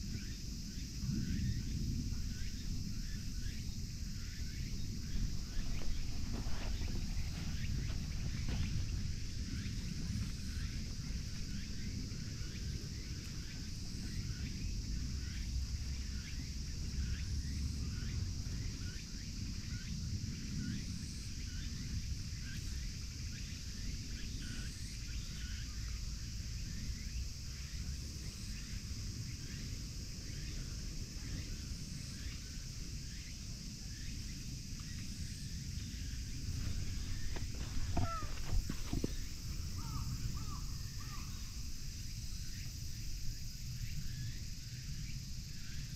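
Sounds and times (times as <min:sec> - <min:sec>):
high insect drone: 0:00.0 - 0:45.9.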